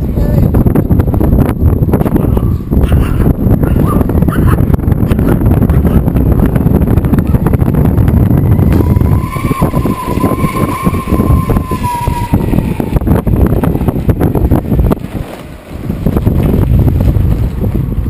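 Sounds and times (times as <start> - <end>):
wind buffeting microphone: 0.0 - 18.0
wheels rolling over rough asphalt: 6.1 - 18.0
high motor whine: 6.4 - 14.6.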